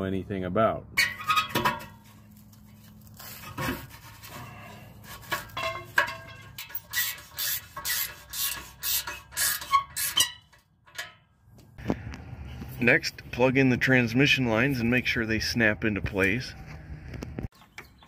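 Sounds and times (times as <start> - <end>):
metal scrapes and knocks: 1.0 - 11.3
wrench tightening a nut: 6.6 - 11.2.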